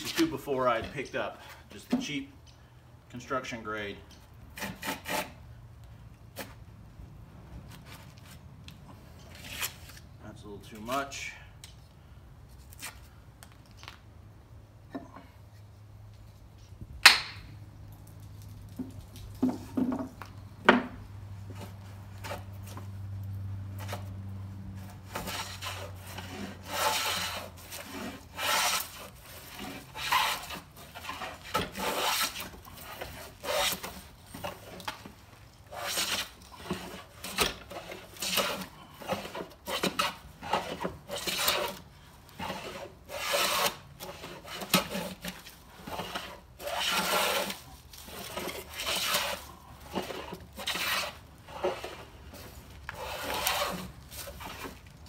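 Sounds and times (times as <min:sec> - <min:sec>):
hand plane shaving wood: 0:00.0 - 0:00.8, 0:04.6 - 0:05.4, 0:24.8 - 0:54.9.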